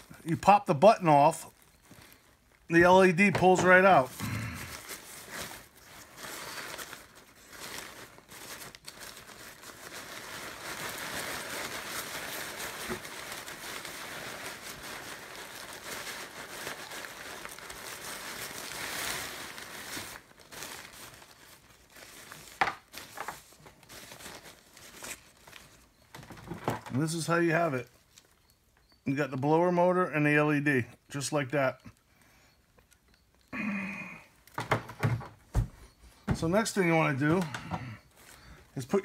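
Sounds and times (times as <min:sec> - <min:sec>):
nylon fabric crinkling: 0:00.0 - 0:28.8.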